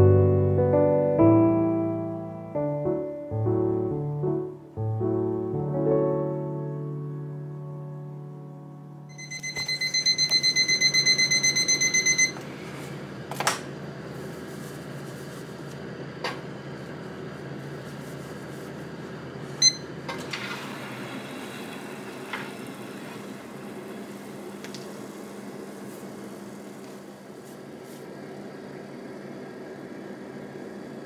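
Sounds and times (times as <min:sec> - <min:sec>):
oven alarm beeping: 0:09.1 - 0:12.7, 0:19.6 - 0:20.1.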